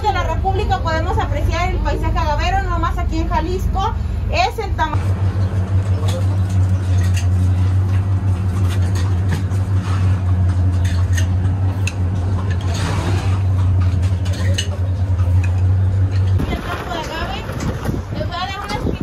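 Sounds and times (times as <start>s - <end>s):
steady low hum: 0.0s - 19.0s
glass bottles and crockery clinking: 10.6s - 17.7s.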